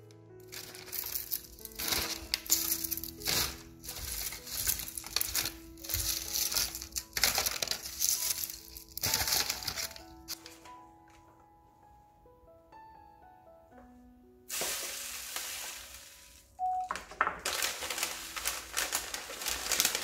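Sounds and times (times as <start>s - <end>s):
crisp seaweed rustling: 0.4s - 10.5s, 14.5s - 20.0s
paper envelope crinkling: 0.4s - 10.8s, 14.5s - 20.0s.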